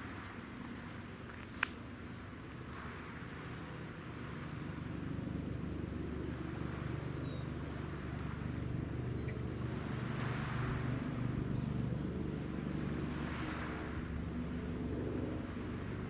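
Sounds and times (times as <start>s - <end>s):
soft hiss: 0.0s - 4.9s
low engine hum: 0.0s - 16.0s.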